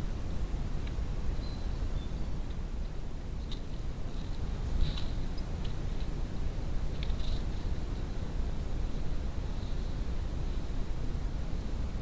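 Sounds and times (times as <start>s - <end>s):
low outdoor rumble: 0.0s - 12.0s
high thin squeaks: 3.4s - 4.8s, 11.6s - 12.0s.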